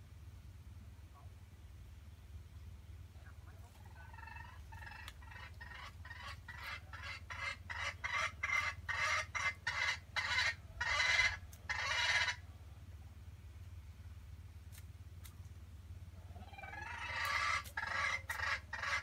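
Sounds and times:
junglefowl clucking: 0:03.2 - 0:12.5, 0:16.2 - 0:19.0
junglefowl loud calls: 0:03.5 - 0:12.5, 0:16.2 - 0:19.0.

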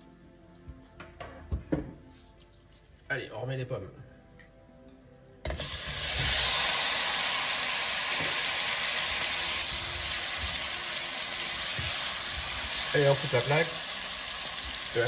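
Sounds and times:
apple slices sizzling in caramel: 0:05.5 - 0:15.0.

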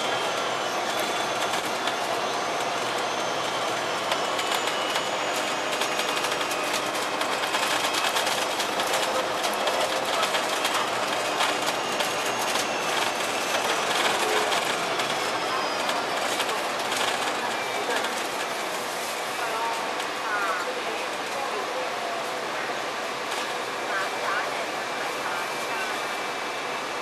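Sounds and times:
faint high whine: 0:00.0 - 0:20.9
bus diesel engine running: 0:00.0 - 0:27.0.

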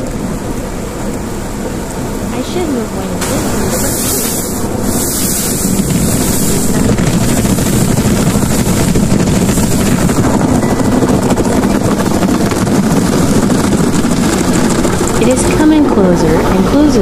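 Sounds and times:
car wash brush whirring: 0:02.0 - 0:15.4.

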